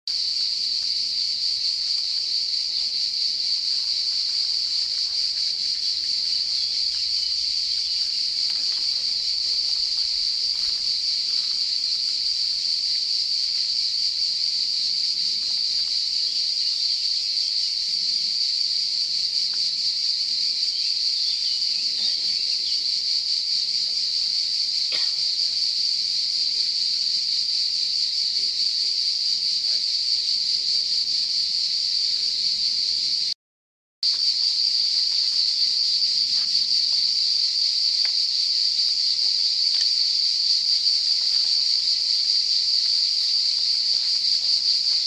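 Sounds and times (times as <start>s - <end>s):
cicada chorus buzzing: 0.1s - 33.4s, 34.0s - 45.0s.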